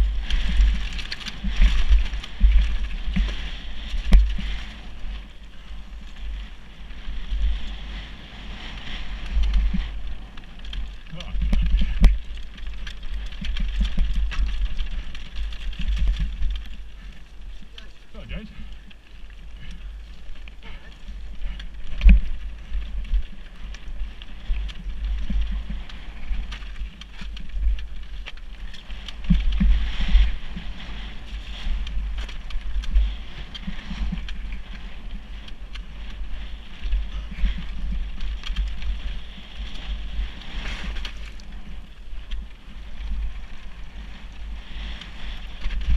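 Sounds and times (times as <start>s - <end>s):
bike tyres rolling on stony trail: 0.0s - 45.9s
wind buffeting microphone: 0.0s - 45.9s
loose stones clicking: 9.1s - 43.3s.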